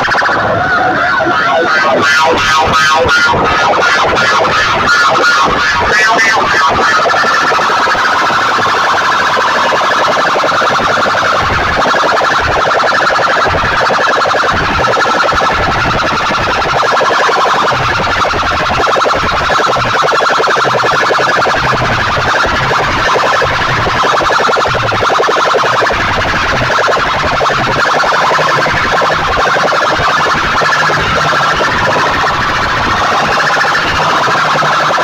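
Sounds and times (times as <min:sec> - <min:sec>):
warbling alarm tone through loudspeakers: 0:00.0 - 0:35.0.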